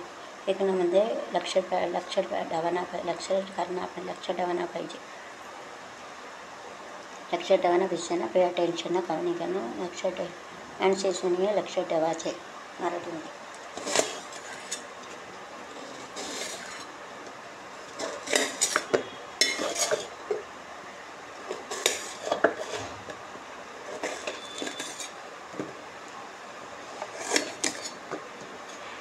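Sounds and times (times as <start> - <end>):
steel pots and utensils clinking: 17.9 - 20.2, 24.0 - 25.1.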